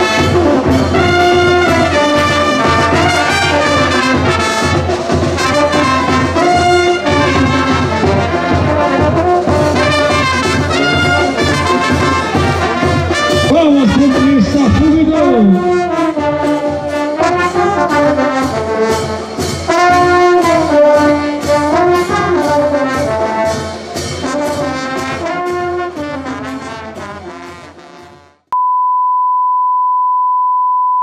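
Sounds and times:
steady drum beat: 0.0 - 25.6
brass band playing: 0.0 - 28.4
high test-tone beep: 28.6 - 31.0.

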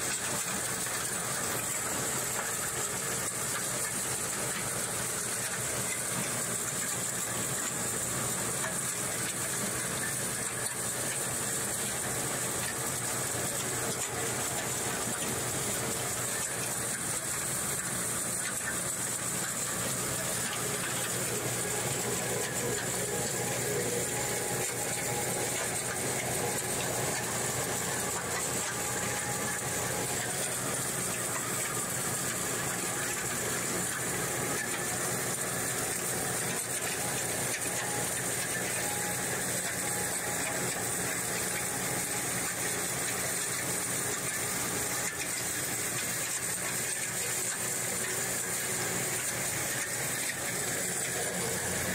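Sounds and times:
machinery motors humming: 11.6 - 35.6.

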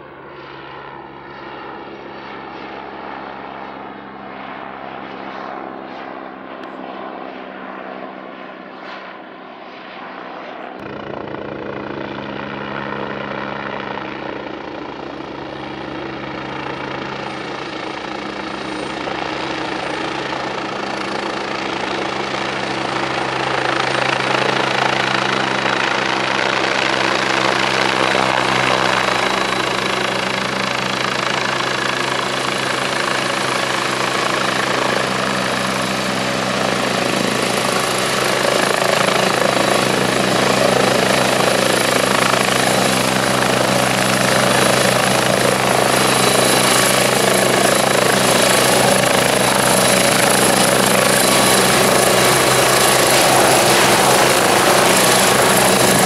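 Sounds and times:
helicopter rotor beating: 0.0 - 56.0
turbine engine whine: 14.5 - 56.0.

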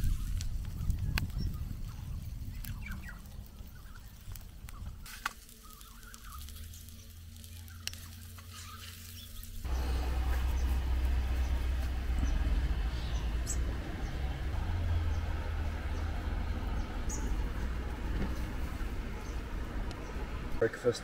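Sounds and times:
food frying crackles and pops: 0.0 - 12.5
steady low hum: 5.6 - 20.8
low rumble: 9.6 - 20.6.

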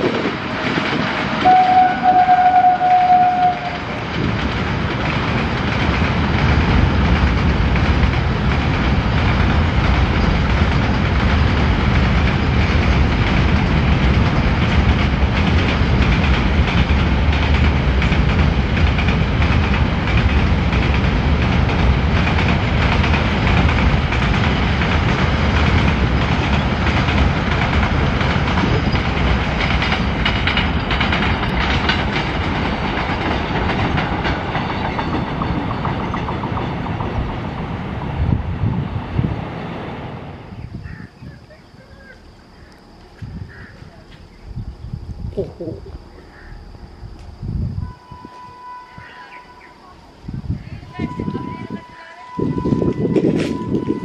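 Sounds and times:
wheels clickety-clack: 0.0 - 38.8
freight train rumbling past: 0.0 - 54.0.

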